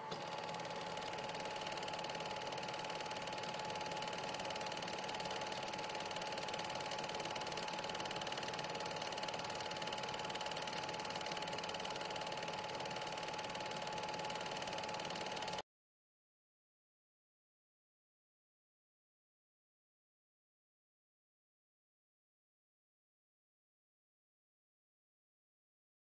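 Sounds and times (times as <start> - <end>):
film projector whirring: 0.0 - 15.6.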